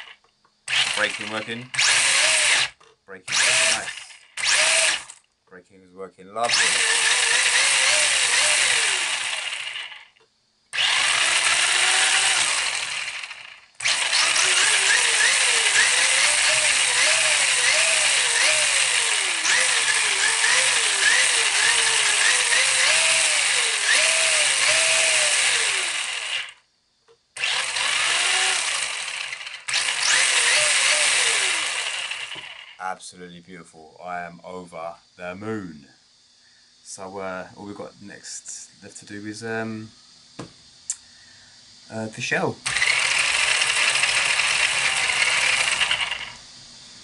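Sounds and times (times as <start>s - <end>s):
electric motor whirring whine: 0.0s - 5.2s, 6.5s - 10.1s, 10.8s - 26.6s, 27.4s - 32.7s, 42.7s - 46.4s.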